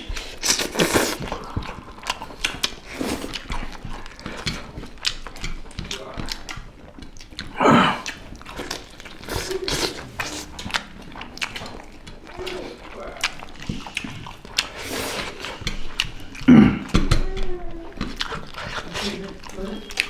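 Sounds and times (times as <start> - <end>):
chewing and mouth smacks: 0.0 - 20.0.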